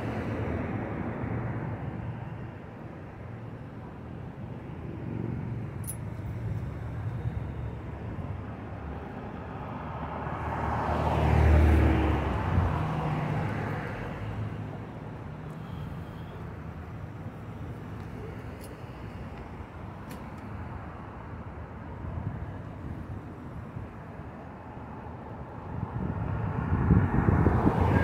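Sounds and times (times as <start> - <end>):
cars driving past: 0.0 - 28.0.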